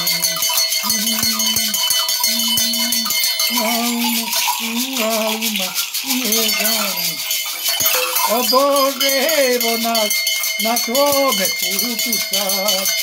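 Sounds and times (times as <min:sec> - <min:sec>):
man chanting wordlessly: 0:00.0 - 0:07.3, 0:08.2 - 0:13.0
gourd rattles and bells jingling: 0:00.0 - 0:13.0.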